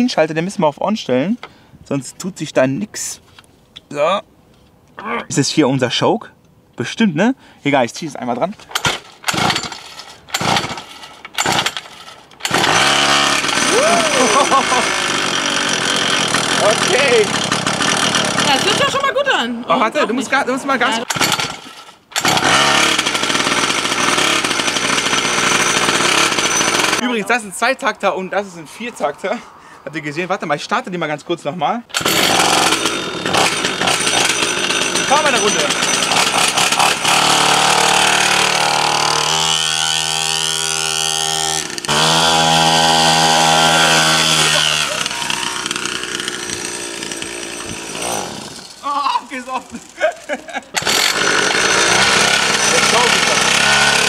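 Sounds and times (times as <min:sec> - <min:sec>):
two-stroke dirt bike engine revving: 0:09.3 - 0:19.1, 0:20.8 - 0:27.0, 0:31.9 - 0:48.8, 0:50.8 - 0:54.0.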